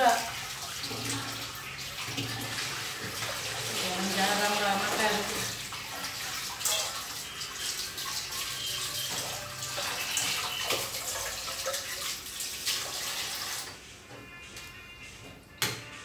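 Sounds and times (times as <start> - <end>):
tap water running into sink: 0.0 - 13.8.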